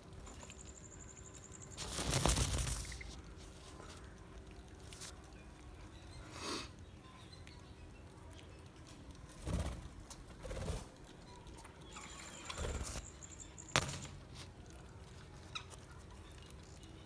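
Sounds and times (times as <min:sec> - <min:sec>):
rustling bursts: 0:01.7 - 0:03.8.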